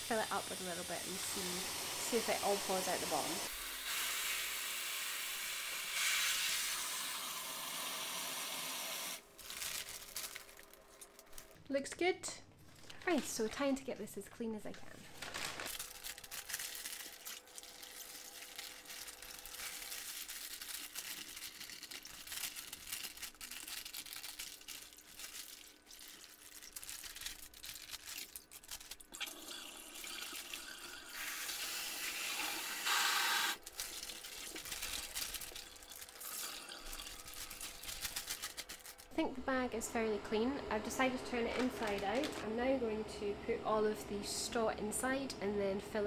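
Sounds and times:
plastic bag crinkling: 9.2 - 11.6, 12.6 - 13.8, 14.6 - 29.2, 33.6 - 39.2, 41.4 - 42.5
water splashing in a sink: 33.6 - 37.8.

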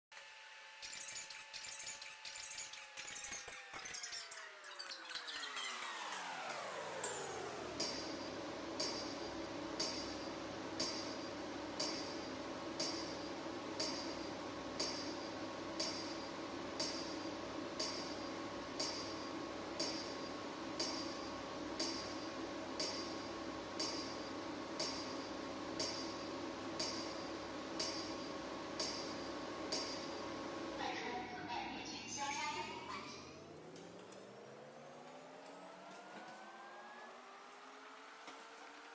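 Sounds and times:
steady machine hum: 0.2 - 38.9
lamp pulse clicks with ringing: 3.1 - 30.4.

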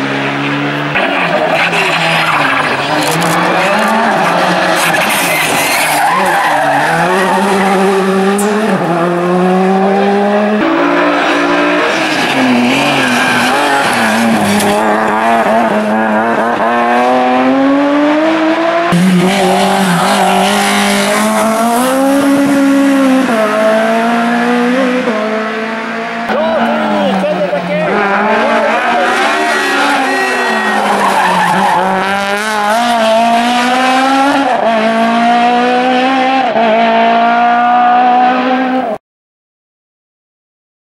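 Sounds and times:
rally car engines revving: 0.0 - 39.0
tyres squealing: 1.0 - 8.6, 11.8 - 15.6, 26.4 - 32.2.

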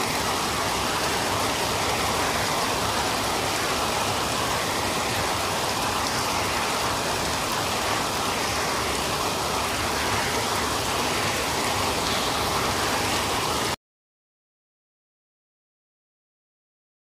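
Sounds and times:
heavy rain falling: 0.0 - 13.8.

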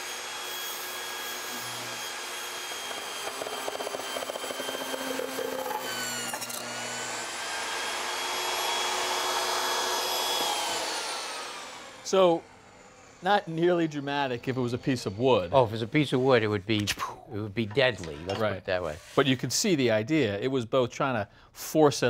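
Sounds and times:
saw blade cutting foam board: 0.0 - 12.0
table saw motor whine: 0.0 - 16.4.

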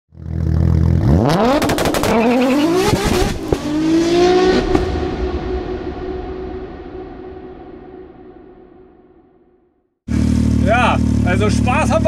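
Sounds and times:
engine revving with pops: 0.2 - 5.0.

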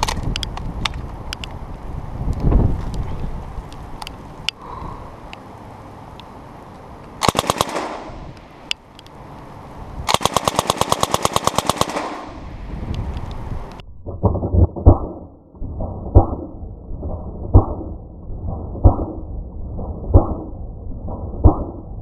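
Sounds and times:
slowed gunfire deep booms: 7.2 - 8.3, 10.1 - 12.6
suppressed machine gun bursts: 7.2 - 8.4, 10.1 - 12.6.

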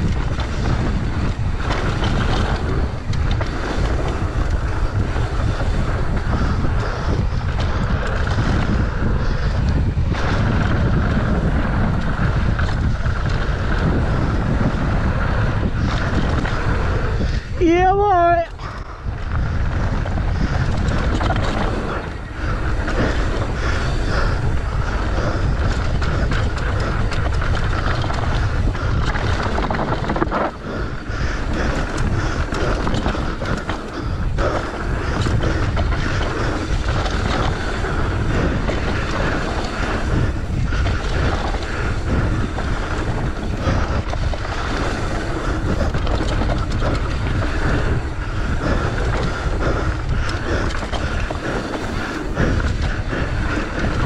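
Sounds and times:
bike tyres rumbling over dirt: 0.0 - 54.0
wind buffeting microphone: 0.0 - 54.0
bike knocking over bumps: 19.8 - 54.0.

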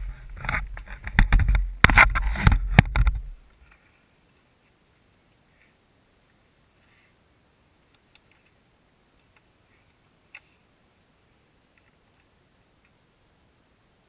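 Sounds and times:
faint clicks: 7.8 - 10.7, 11.7 - 13.0.

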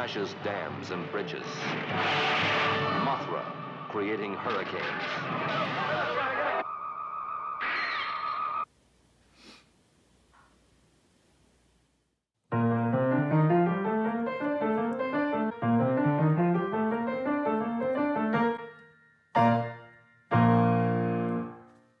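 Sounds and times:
piano music: 12.5 - 22.0.

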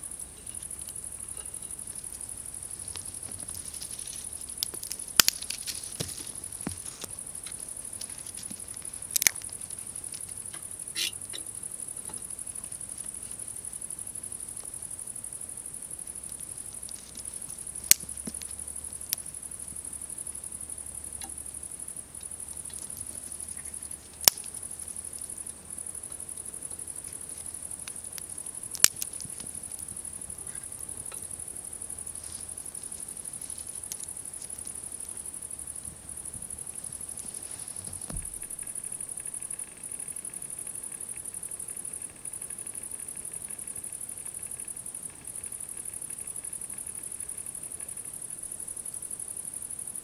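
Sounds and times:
insects chorus: 0.0 - 50.0
twigs crackling and popping: 0.5 - 11.4, 16.2 - 19.3, 22.2 - 26.3, 27.0 - 31.3, 32.1 - 35.2, 36.6 - 39.6.

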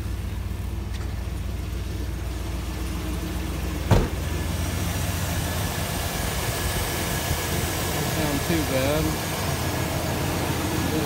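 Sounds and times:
truck engine idling: 0.0 - 11.0
loud thump: 3.9 - 4.3.

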